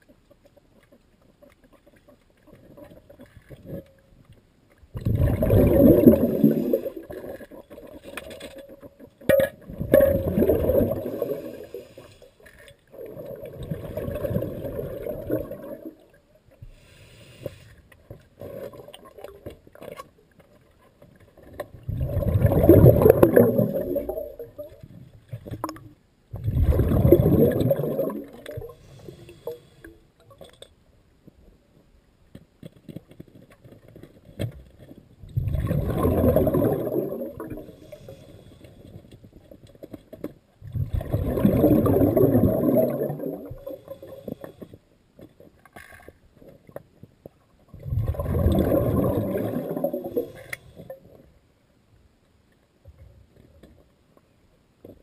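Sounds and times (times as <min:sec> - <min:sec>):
underwater exhaled air bubbles: 0:04.9 - 0:12.2, 0:12.9 - 0:16.2, 0:21.4 - 0:29.7, 0:34.7 - 0:39.6, 0:40.6 - 0:44.8, 0:47.7 - 0:51.2.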